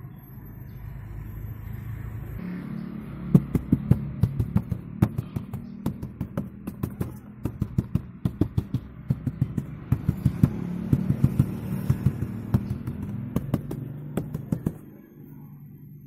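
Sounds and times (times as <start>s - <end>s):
fingers knocking on plastic trim: 3.3s - 14.8s.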